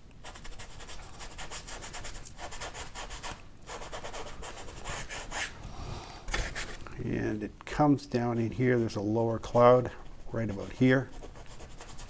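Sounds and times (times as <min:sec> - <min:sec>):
paintbrush scrubbing on canvas: 0:00.3 - 0:06.8, 0:09.9 - 0:12.0.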